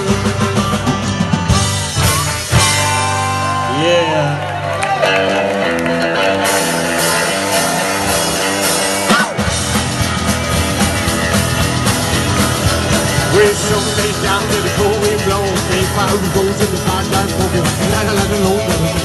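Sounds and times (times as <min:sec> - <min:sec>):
drums: 0:00.0 - 0:19.0
electric guitar: 0:00.0 - 0:19.0
slapped upright bass: 0:06.4 - 0:19.0.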